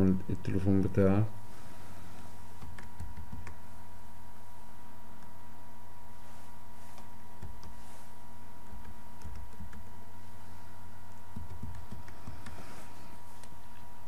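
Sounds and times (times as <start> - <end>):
steady electrical hum: 0.0 - 14.0
keyboard typing: 2.6 - 3.6, 8.8 - 9.8, 11.1 - 12.6.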